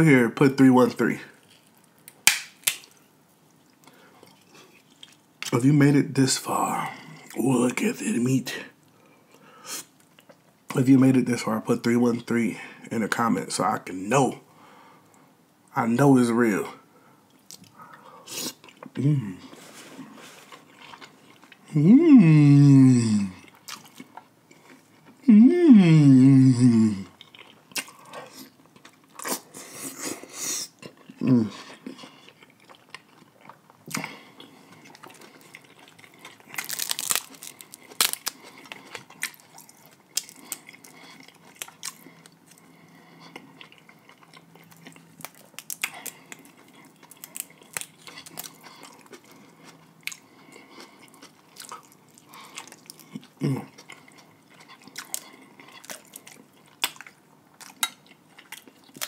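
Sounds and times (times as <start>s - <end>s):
crab shells snapping: 2.0s - 2.9s, 36.6s - 38.4s
person making low sounds: 19.0s - 19.4s, 21.7s - 23.4s, 25.2s - 27.2s, 31.2s - 31.6s
wet chewing and sucking: 27.2s - 59.0s.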